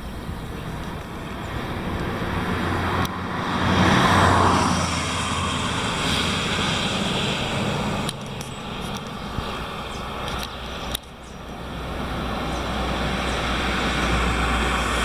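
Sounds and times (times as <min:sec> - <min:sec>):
vehicle driving past: 0:00.6 - 0:15.0.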